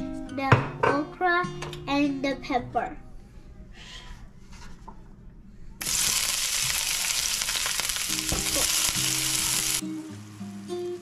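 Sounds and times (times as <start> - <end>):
pepper sizzling in hot oil: 5.8 - 10.5.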